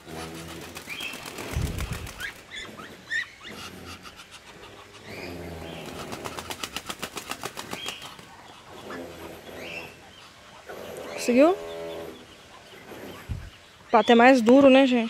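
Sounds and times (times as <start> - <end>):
duck wings flapping: 0.0 - 2.9, 5.7 - 8.4.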